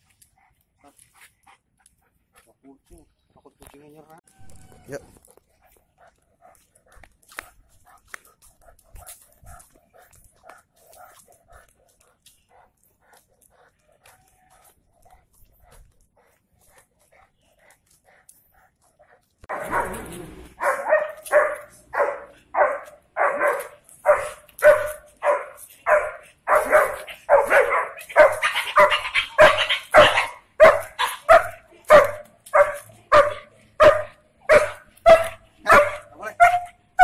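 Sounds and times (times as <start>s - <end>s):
dog barking: 19.5s - 37.0s.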